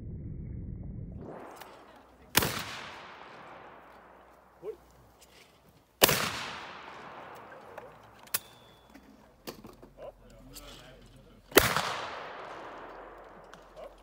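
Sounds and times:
loud shotgun shot: 0:01.2 - 0:04.2, 0:06.0 - 0:08.6, 0:11.5 - 0:13.9
shotgun shot echoing: 0:01.2 - 0:04.6, 0:06.0 - 0:08.8, 0:11.5 - 0:14.0.

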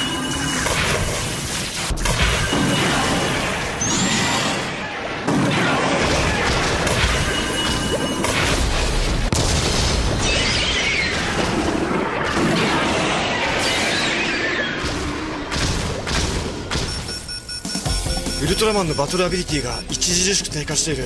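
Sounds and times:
explosions and crashing impacts: 0:00.6 - 0:17.0.

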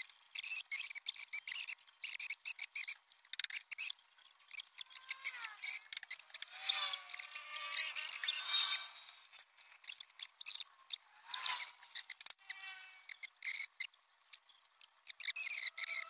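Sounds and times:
lathe squeaking: 0:00.4 - 0:13.9, 0:14.8 - 0:16.0
lathe squealing: 0:04.5 - 0:13.9, 0:15.1 - 0:16.0.

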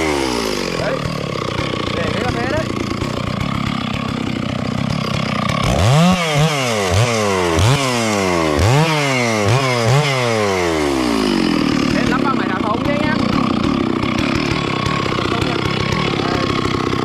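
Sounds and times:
chainsaw cutting root: 0:00.0 - 0:17.0.

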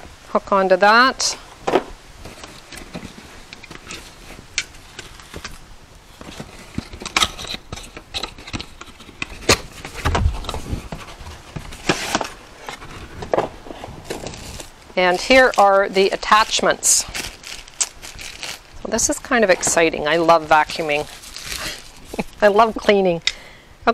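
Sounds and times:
plastic parts clicking and knocking: 0:06.2 - 0:14.3
dull thump: 0:10.0 - 0:11.0.

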